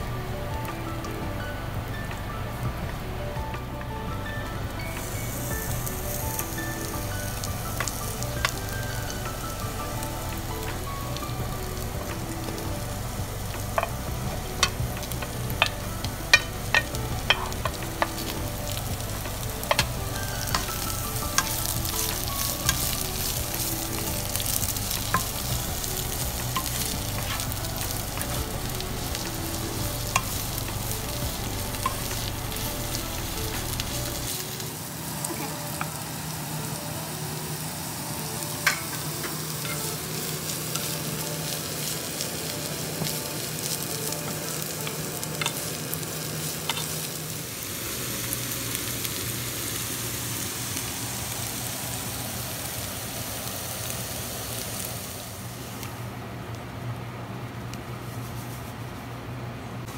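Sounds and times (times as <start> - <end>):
vegetables sizzling in a frying pan: 0.0 - 56.2.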